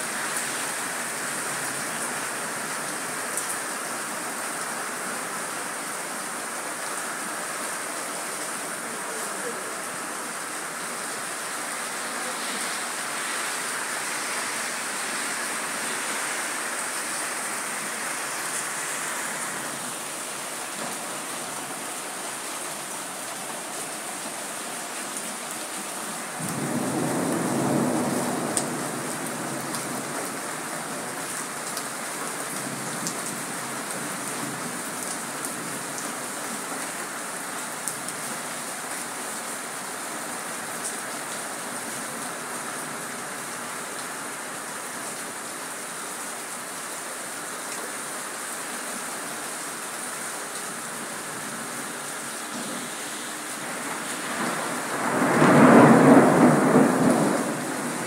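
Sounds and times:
steady rain falling: 0.0s - 58.0s
low rumble of thunder: 26.4s - 30.1s, 54.4s - 58.0s.

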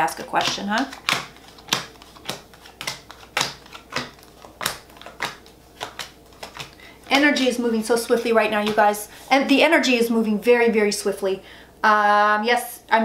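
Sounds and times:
cards being shuffled: 0.1s - 9.1s.

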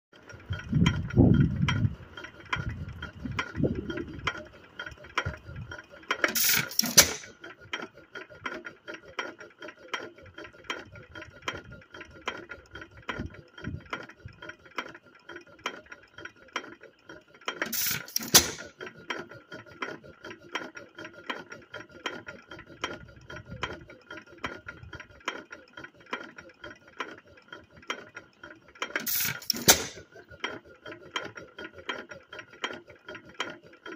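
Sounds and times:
engine valve gear clicking: 0.2s - 7.5s, 17.5s - 18.8s, 28.8s - 30.1s
engine firing strokes: 0.5s - 7.4s.

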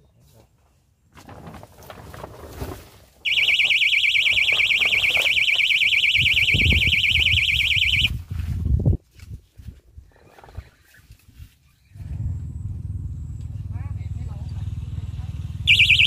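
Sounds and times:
bite alarm warbling beep: 3.3s - 8.1s, 15.7s - 16.0s.

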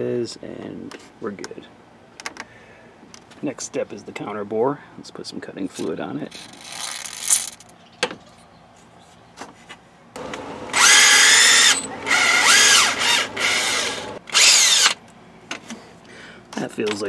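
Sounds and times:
power drill cutting metal: 10.2s - 15.0s.

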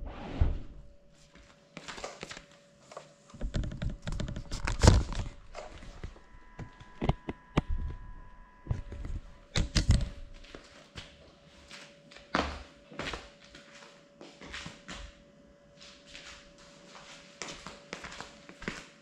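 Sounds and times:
footsteps on tiles: 1.2s - 3.5s, 8.8s - 15.2s, 15.8s - 19.0s.

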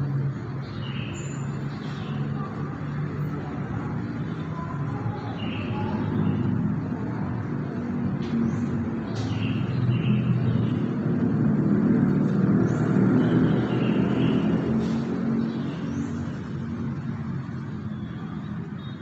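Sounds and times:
low rumble of vehicle engines: 0.0s - 19.0s.

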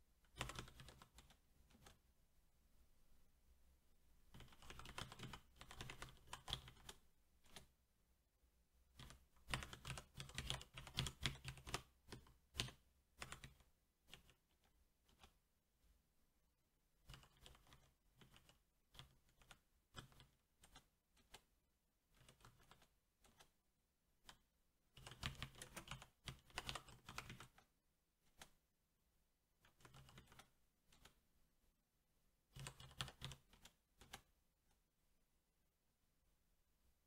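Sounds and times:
mechanical keyboard typing: 0.3s - 2.0s, 4.3s - 7.7s, 8.9s - 15.4s, 17.0s - 21.5s, 22.1s - 23.6s, 24.2s - 27.7s, 29.6s - 31.2s, 32.5s - 34.3s.

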